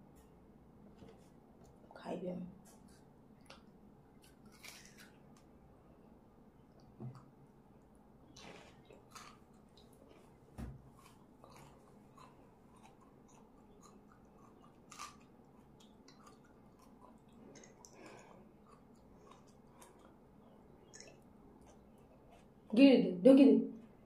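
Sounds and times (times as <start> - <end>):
person chewing food: 2.7 - 22.7.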